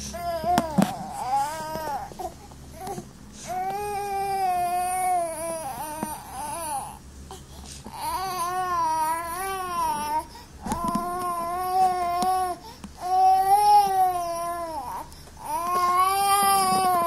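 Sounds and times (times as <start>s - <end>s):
baby crying: 7.9s - 17.0s.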